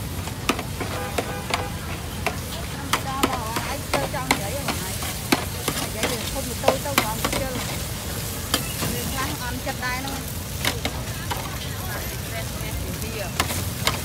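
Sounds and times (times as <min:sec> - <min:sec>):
food sizzling in a pan: 0:00.0 - 0:14.0
metal utensil clinking on pan: 0:00.5 - 0:07.8.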